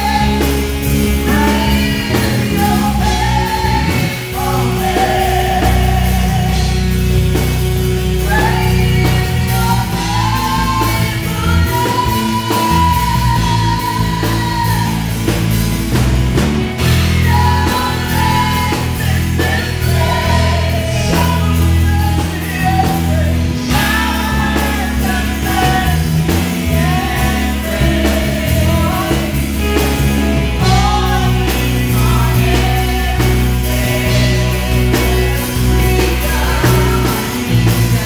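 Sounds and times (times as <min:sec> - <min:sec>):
woman singing into microphone: 0:00.0 - 0:07.0, 0:08.2 - 0:15.2, 0:17.0 - 0:29.6
backing voices singing: 0:00.0 - 0:38.0
band accompaniment: 0:00.0 - 0:38.0.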